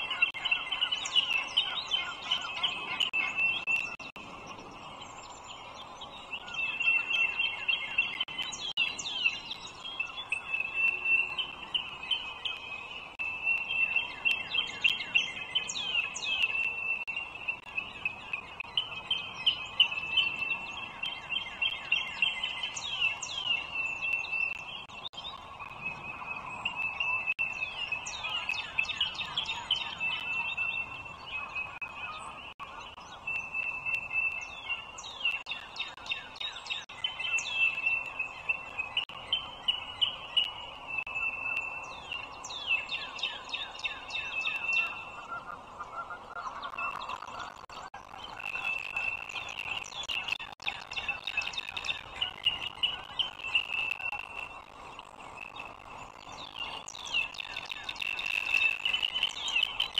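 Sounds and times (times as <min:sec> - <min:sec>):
eagle chicks high-pitched chirping: 0:46.1 - 0:59.9.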